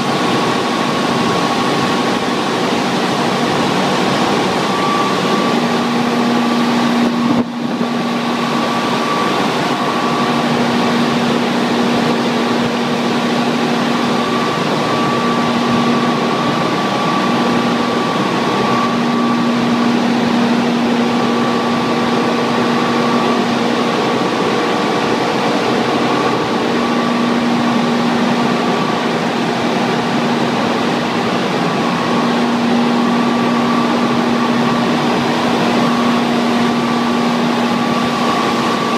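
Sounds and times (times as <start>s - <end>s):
high machine whine: 0.0s - 38.9s
water turbine generator humming: 0.0s - 38.9s.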